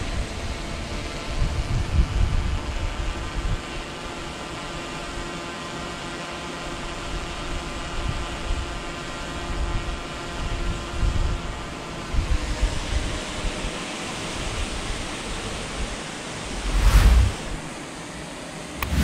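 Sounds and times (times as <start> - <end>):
drone propellers whirring: 16.4 - 17.8, 18.7 - 19.0
wind buffeting microphone: 16.5 - 17.7.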